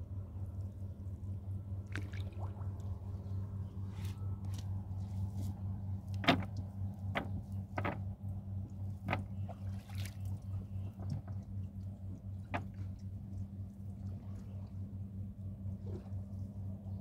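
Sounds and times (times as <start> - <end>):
steady low hum: 0.0 - 17.0
wet net clicks and splashes: 1.8 - 2.9.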